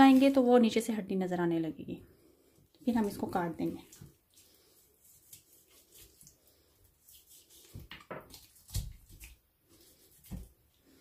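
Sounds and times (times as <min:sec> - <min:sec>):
knife scraping on cutting board: 0:05.0 - 0:06.4.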